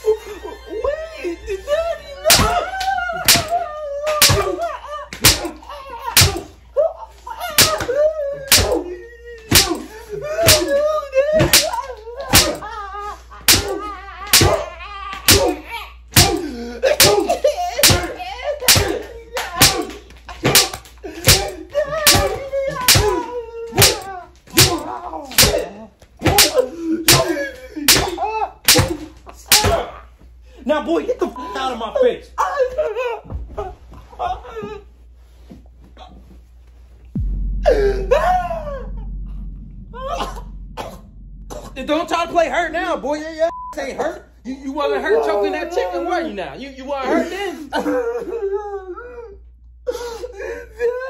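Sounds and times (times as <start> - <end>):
sharp spanking smacks: 2.3 - 2.6, 3.2 - 4.6, 5.2 - 6.5, 7.5 - 8.9, 9.5 - 10.8, 11.4 - 12.6, 13.5 - 14.6, 15.3 - 15.6, 16.2 - 23.2, 23.8 - 25.6, 26.3 - 29.8
sharp slaps: 2.3 - 6.5, 7.5 - 8.9, 9.5 - 10.8, 11.4 - 12.7, 13.5 - 15.6, 16.2 - 29.8.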